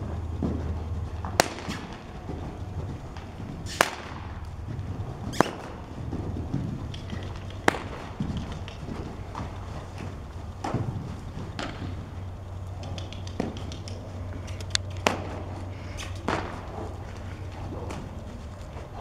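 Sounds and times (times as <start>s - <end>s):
horse hoofbeats on soft ground: 0.0s - 19.0s
whip cracking: 1.4s - 2.1s, 3.1s - 4.5s, 5.3s - 5.8s, 7.4s - 8.8s, 15.0s - 16.8s.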